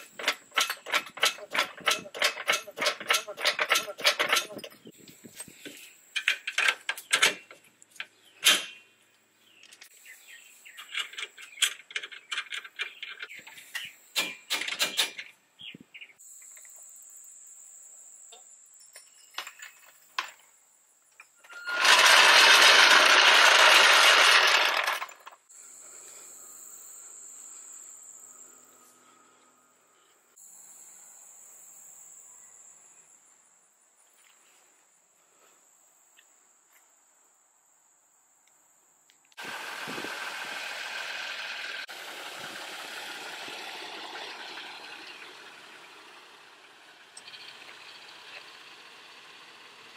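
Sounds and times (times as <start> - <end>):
metal tools clattering on concrete: 0.0 - 4.8
crickets chirping: 16.0 - 21.4, 25.5 - 39.4.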